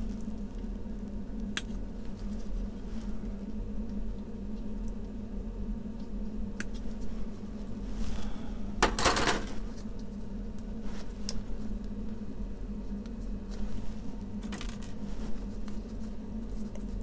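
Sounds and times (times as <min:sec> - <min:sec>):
low hum: 0:00.0 - 0:17.0
plastic parts clattering: 0:08.8 - 0:09.6.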